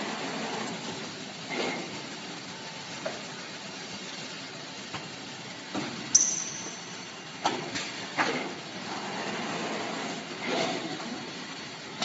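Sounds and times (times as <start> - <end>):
machinery hiss and hum: 0.0 - 12.0
sharp high-pitched sound: 6.2 - 7.1.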